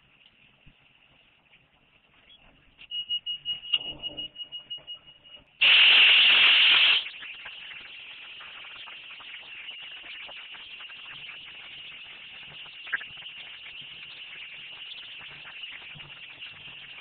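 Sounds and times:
high pulsing tone: 3.1s - 5.6s
spray wand hissing: 5.6s - 14.3s.

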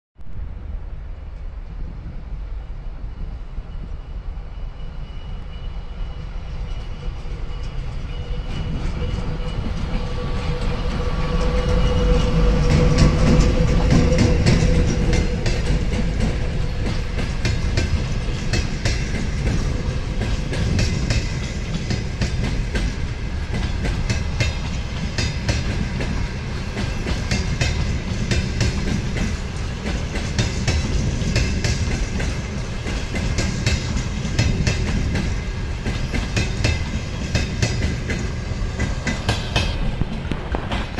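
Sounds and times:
diesel locomotive engine passing: 0.3s - 40.9s
train wheels clacking over rail joints: 6.6s - 40.9s.

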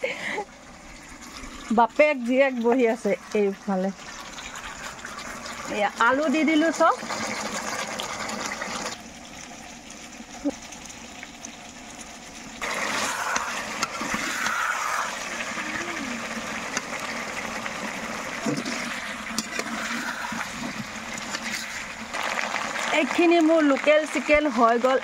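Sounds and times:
curry sizzling and bubbling: 0.0s - 25.0s.

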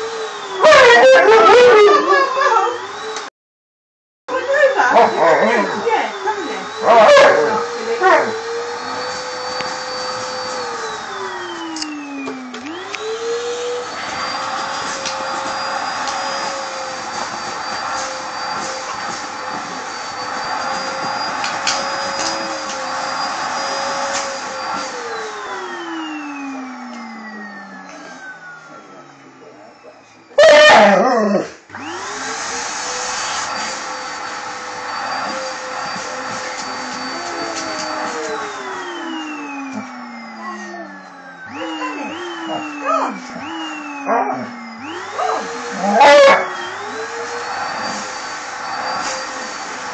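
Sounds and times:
vacuum cleaner running: 0.0s - 3.3s, 4.3s - 49.9s
dog howling: 0.6s - 2.8s, 4.5s - 5.7s, 6.4s - 9.1s, 30.4s - 31.6s, 41.6s - 47.0s.

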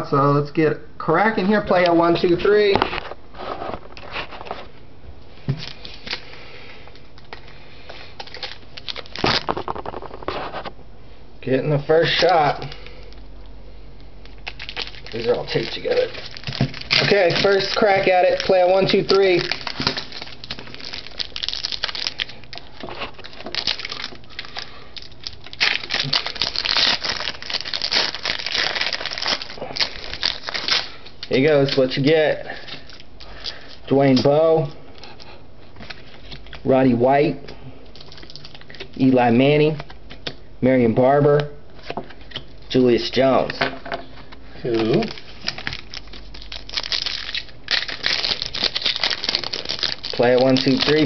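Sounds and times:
card packs rustling: 5.4s - 10.7s, 13.9s - 36.7s, 37.9s - 40.3s, 41.8s - 51.0s
foil wrapper crinkling and tearing: 5.6s - 10.7s, 14.0s - 35.1s, 37.9s - 39.1s, 44.6s - 51.0s.

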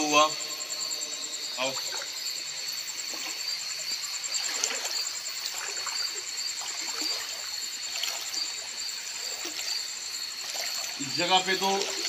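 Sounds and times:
night insects chirring: 0.0s - 12.0s
feet splashing through water: 11.8s - 12.0s.

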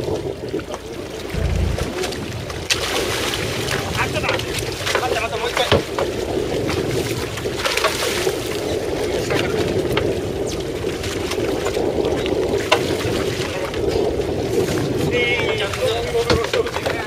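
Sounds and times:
water splashing against hull: 0.0s - 17.0s
boat engine droning: 1.0s - 2.8s.

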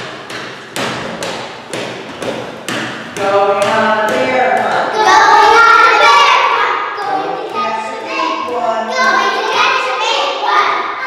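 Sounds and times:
percussive beat: 0.0s - 5.2s
children singing together: 3.2s - 11.0s.

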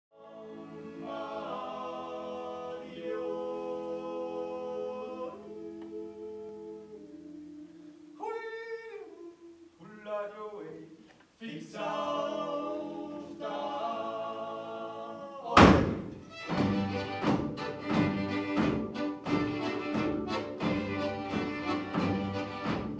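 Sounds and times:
folk band playing: 15.8s - 22.9s.

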